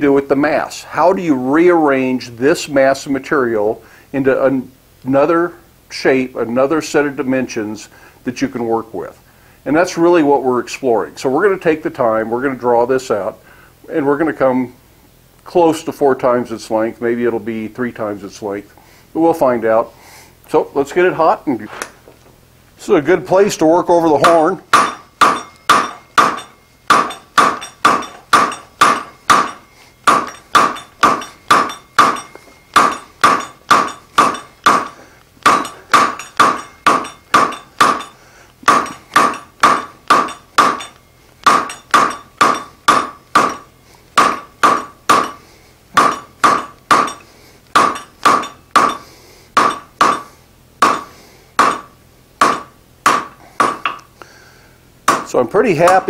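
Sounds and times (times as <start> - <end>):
hammer striking steel on anvil: 24.2 - 45.4, 46.0 - 54.0, 55.1 - 56.0.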